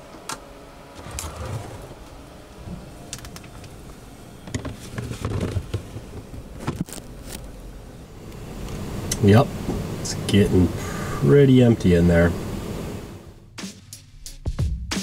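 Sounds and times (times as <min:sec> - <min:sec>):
steady background noise: 0:00.0 - 0:13.5
plastic drawer being pulled out: 0:01.0 - 0:02.2.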